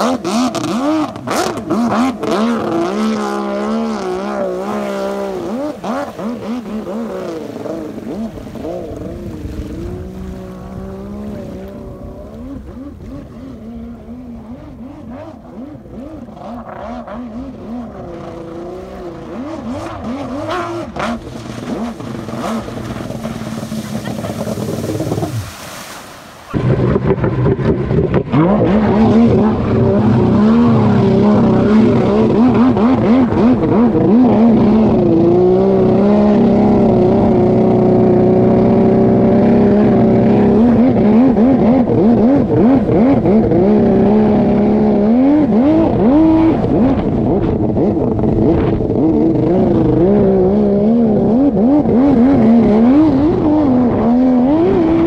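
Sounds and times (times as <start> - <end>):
jet ski engine revving: 0.0 - 55.0.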